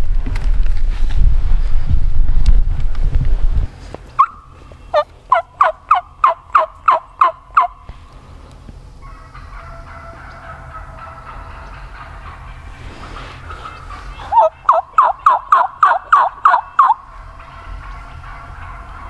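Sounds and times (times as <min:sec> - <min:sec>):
wind on microphone: 0:00.0 - 0:03.8
turkey yelps: 0:04.2 - 0:07.8, 0:09.0 - 0:12.5, 0:13.2 - 0:17.0.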